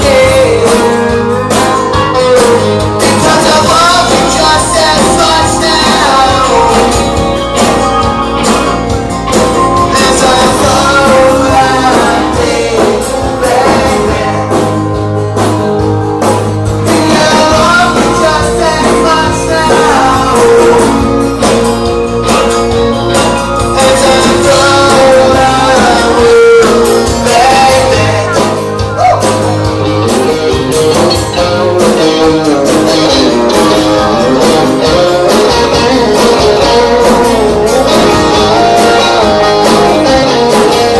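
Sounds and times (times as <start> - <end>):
men singing: 0.0 - 7.4, 9.8 - 15.1, 16.8 - 21.6, 23.5 - 29.2, 32.0 - 40.9
rock band playing live: 0.0 - 40.9.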